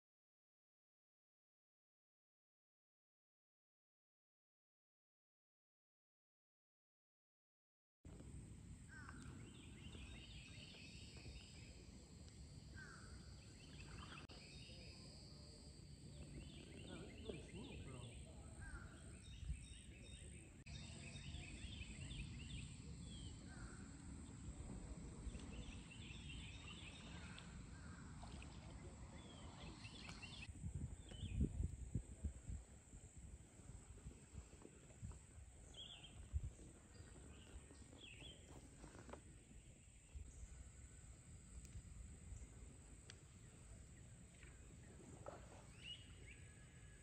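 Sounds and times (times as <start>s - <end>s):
birds chirping and trilling: 16.0s - 31.4s, 44.6s - 47.0s
low steady rumble: 18.1s - 38.9s.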